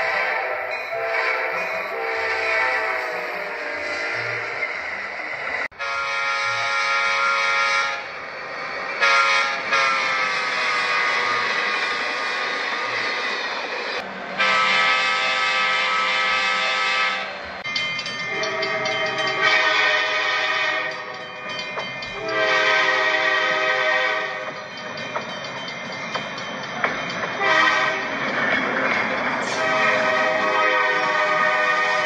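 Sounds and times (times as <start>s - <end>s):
locomotive air horn blasts: 0.0s - 4.6s, 5.7s - 8.1s, 9.0s - 12.2s, 14.4s - 17.4s, 18.3s - 21.1s, 22.2s - 24.5s, 27.4s - 28.1s, 29.5s - 32.0s
train running noise: 0.0s - 32.0s.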